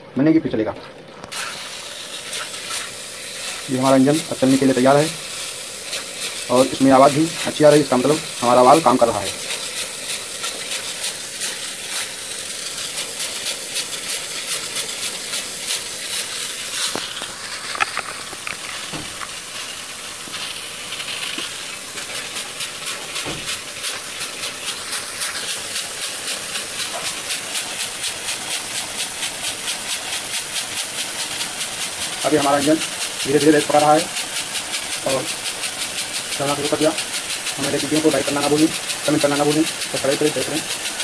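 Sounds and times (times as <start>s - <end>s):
steam engine hissing and puffing: 1.2s - 41.0s.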